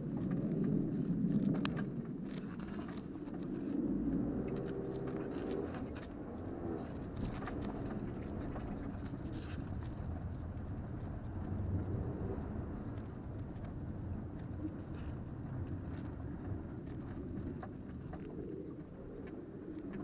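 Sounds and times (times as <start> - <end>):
car engine and road hum: 2.0 - 20.0
light clicks and knocks from bumps: 4.5 - 20.0.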